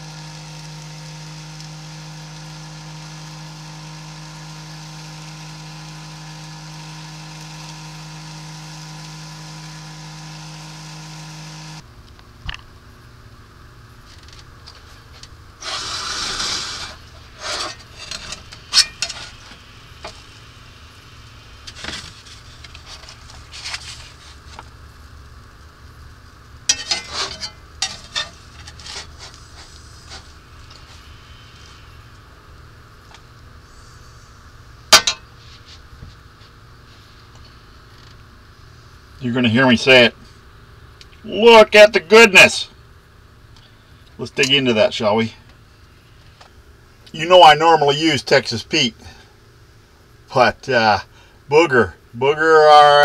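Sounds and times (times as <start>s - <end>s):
omelet sizzling in a skillet: 0.0s - 11.8s, 13.8s - 39.2s
scraping on cast iron skillet: 15.6s - 20.3s, 21.6s - 24.6s, 26.7s - 31.9s, 34.9s - 37.1s.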